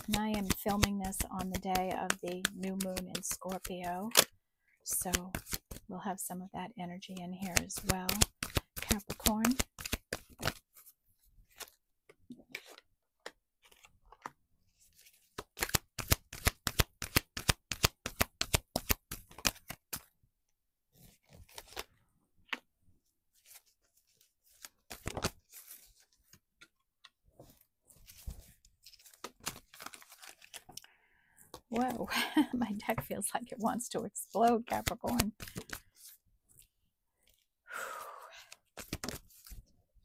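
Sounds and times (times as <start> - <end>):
card rustling: 0.0 - 4.3, 23.3 - 26.8, 27.4 - 30.8, 31.4 - 37.4, 38.6 - 39.6
cards being shuffled: 0.0 - 4.3, 5.1 - 5.8, 7.4 - 14.3, 14.9 - 20.1, 21.0 - 21.9, 23.4 - 26.7, 27.4 - 30.8, 34.3 - 37.4, 38.6 - 39.7.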